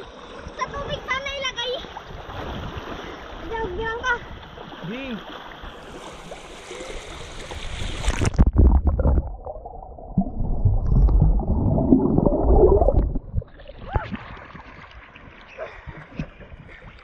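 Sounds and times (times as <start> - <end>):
underwater rumble and gurgling: 5.5 - 17.0
swimmer thumps underwater: 7.0 - 17.0.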